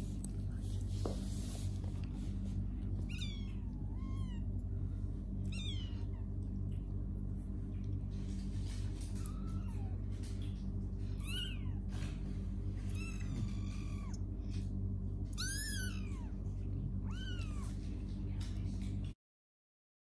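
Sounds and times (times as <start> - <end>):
steady low hum: 0.0 - 19.2
kitten meowing: 3.0 - 4.4, 5.4 - 6.2, 11.2 - 11.8, 12.9 - 14.2, 15.3 - 16.4, 17.0 - 17.8.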